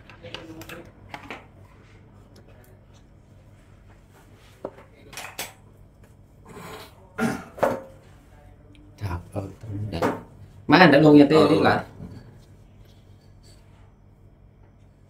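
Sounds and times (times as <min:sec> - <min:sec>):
dishes clinking and knocking: 0:04.7 - 0:05.6, 0:07.2 - 0:08.0.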